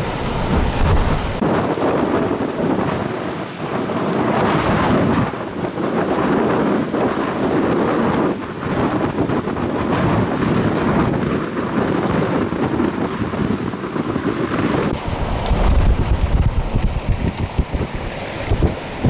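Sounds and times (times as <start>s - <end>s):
choppy floodwater surging: 0.0s - 19.0s
wind gusting across microphone: 0.0s - 19.0s.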